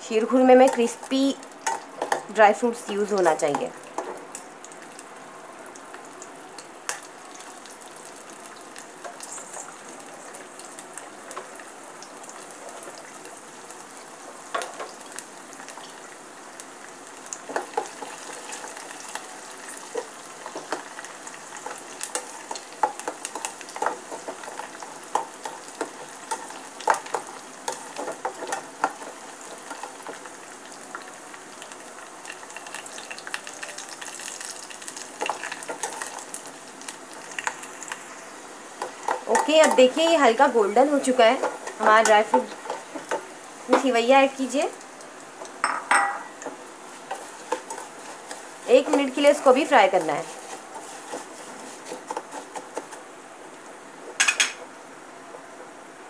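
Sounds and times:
fruit sizzling in hot oil: 0.0 - 56.0
spatula scraping and tapping pan: 0.6 - 1.0, 21.5 - 30.3, 38.8 - 40.0, 40.9 - 43.9, 45.4 - 53.0.

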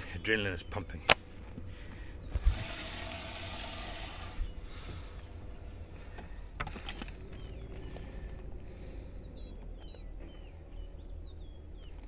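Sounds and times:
water splashing and pouring: 2.4 - 4.5.

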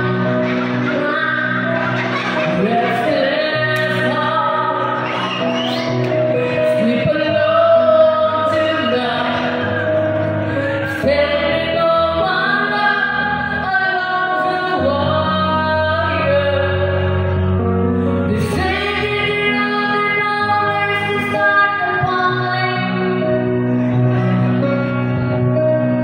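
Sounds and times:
woman singing into microphone: 0.0 - 5.7, 6.4 - 17.4, 18.1 - 23.4.

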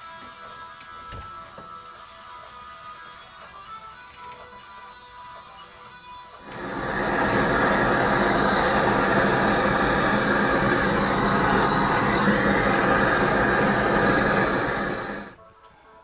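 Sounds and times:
blowtorch flame rushing: 6.5 - 15.4.

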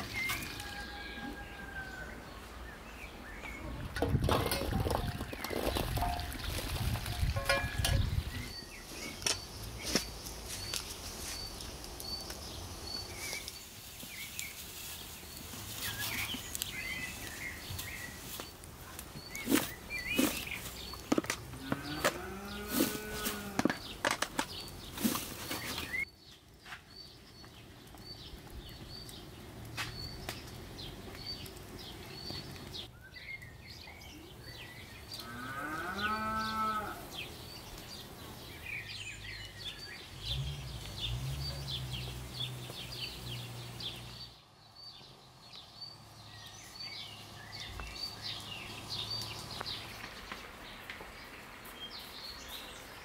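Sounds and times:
small birds chirping: 0.0 - 53.0
cow mooing: 21.6 - 23.6, 35.2 - 37.0.

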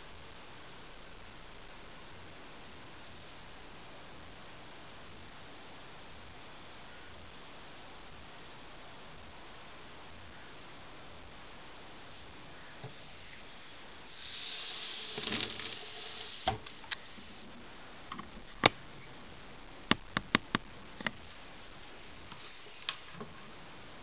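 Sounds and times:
coffee pot hissing: 14.0 - 17.4
sharp clicks and taps: 19.9 - 21.2.

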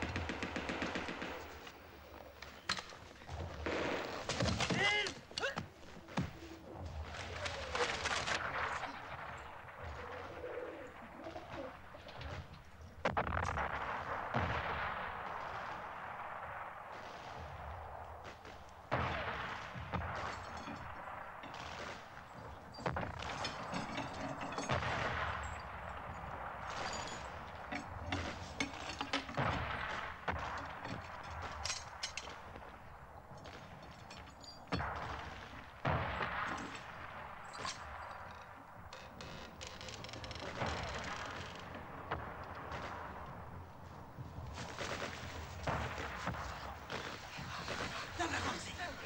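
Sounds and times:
machine-gun fire: 0.0 - 1.8
explosions: 3.2 - 5.3, 6.0 - 39.0, 40.2 - 49.0.

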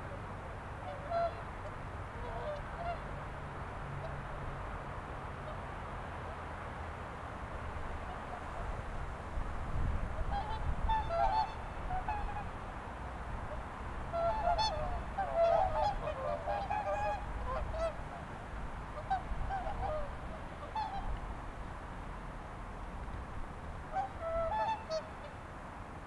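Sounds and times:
waterfowl calling: 0.8 - 3.1, 10.2 - 12.6, 14.1 - 18.2, 18.9 - 21.2, 23.9 - 25.4.

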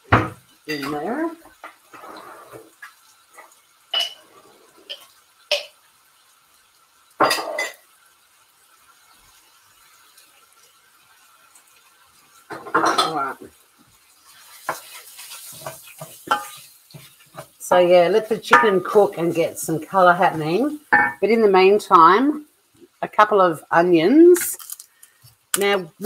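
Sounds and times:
chicken sizzling in a pan: 0.0 - 26.0
utensils and dishes clinking: 3.9 - 5.7, 7.2 - 7.8, 12.5 - 13.4, 14.7 - 17.5, 20.9 - 21.2, 24.4 - 25.8.

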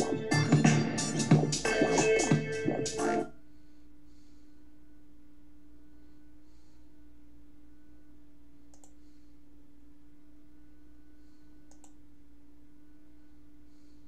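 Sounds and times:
steady low hum: 0.0 - 14.0
faint double clicks: 8.7 - 9.0, 11.7 - 12.0.

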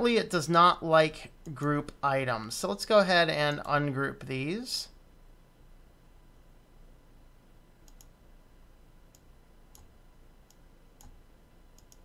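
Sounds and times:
computer mouse clicking: 7.8 - 8.2, 9.1 - 11.2, 11.8 - 12.0.

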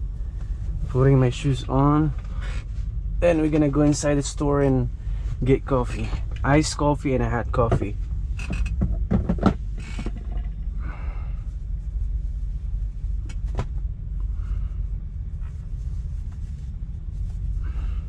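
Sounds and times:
diesel engine idling: 0.0 - 8.7.

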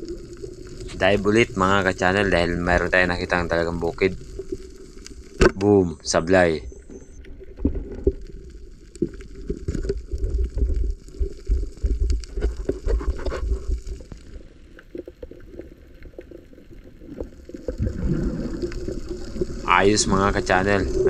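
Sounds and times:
muffled underwater gurgling: 0.0 - 8.6, 16.5 - 21.0.

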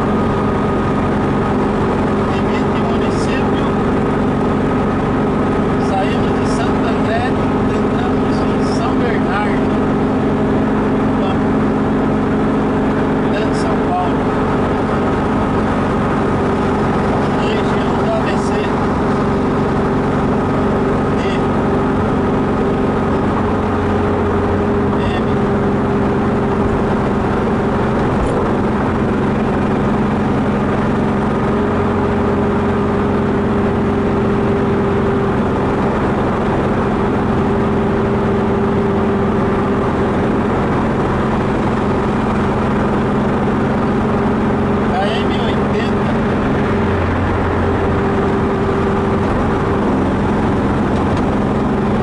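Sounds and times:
car engine and road drone: 0.0 - 52.0.

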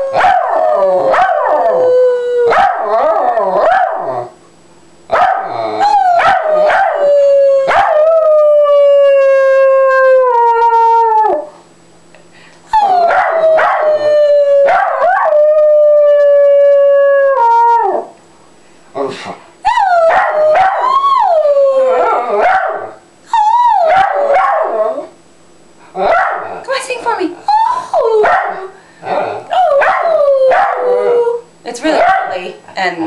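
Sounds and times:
dog howling: 0.0 - 4.3, 5.2 - 11.5, 12.8 - 18.1, 19.7 - 25.1, 29.5 - 32.3
woman howling: 19.6 - 22.4, 27.5 - 28.4, 29.5 - 31.5.

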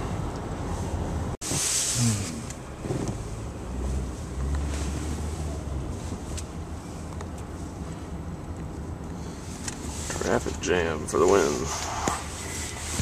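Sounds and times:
car cabin road rumble: 0.0 - 13.0.

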